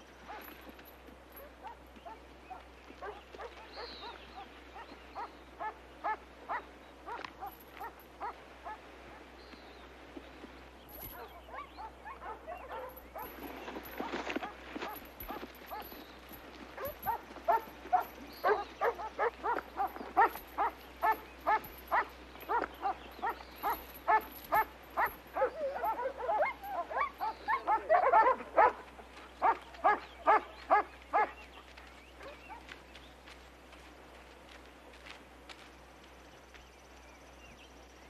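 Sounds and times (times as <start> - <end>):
dogs barking: 0.2 - 0.7, 1.3 - 9.3, 10.9 - 32.8.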